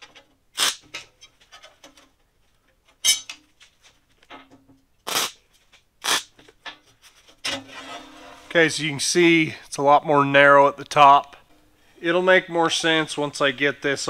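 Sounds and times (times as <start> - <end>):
steel pieces clanking: 3.0 - 3.5.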